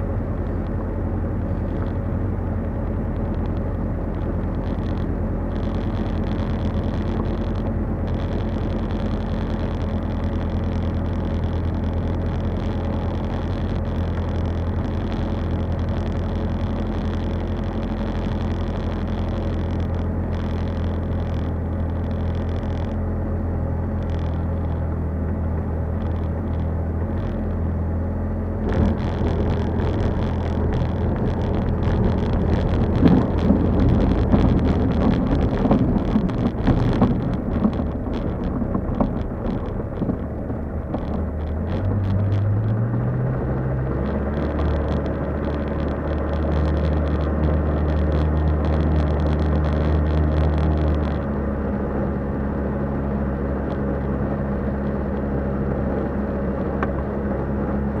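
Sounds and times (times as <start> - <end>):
aircraft low hum: 0.0 - 58.0
wheel rumbling on grass: 28.5 - 58.0
knocks and bumps: 28.7 - 43.0.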